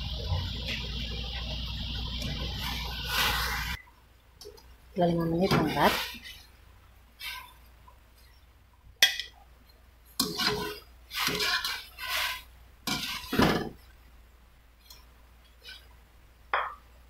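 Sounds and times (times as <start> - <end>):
metal skimmer scraping pot: 5.0 - 6.5, 10.2 - 13.8.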